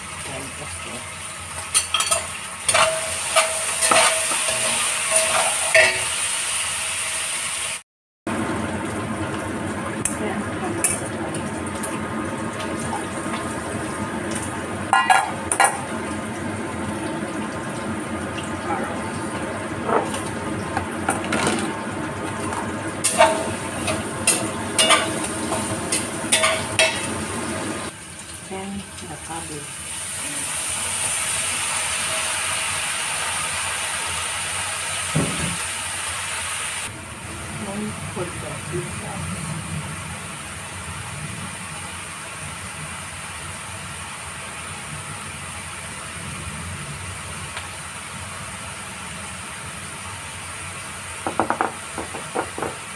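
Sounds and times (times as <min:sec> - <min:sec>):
food sizzling in a wok: 0:00.0 - 0:52.9
metal clanking on metal: 0:23.0 - 0:27.1.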